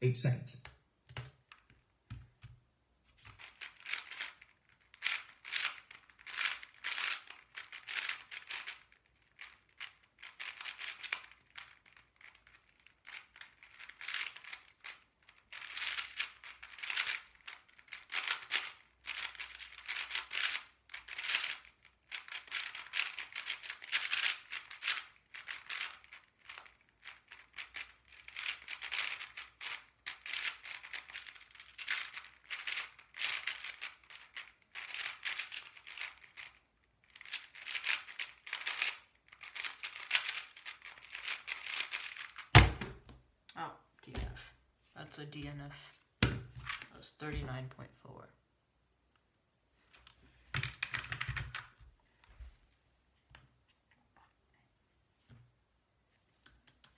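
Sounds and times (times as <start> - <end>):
plastic puzzle cube clicking: 3.2 - 42.7.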